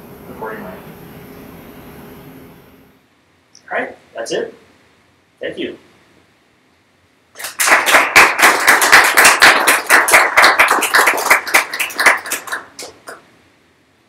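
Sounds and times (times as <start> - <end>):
audience applauding: 7.4 - 13.2.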